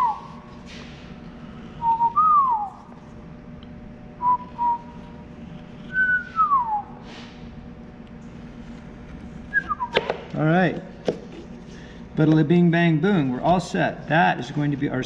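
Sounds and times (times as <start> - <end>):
person whistling sliding notes: 4.2 - 5.2, 5.8 - 7.1.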